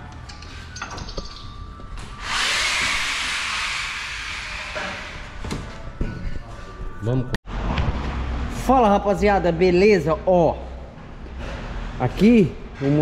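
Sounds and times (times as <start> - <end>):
loud air hiss: 2.2 - 5.4.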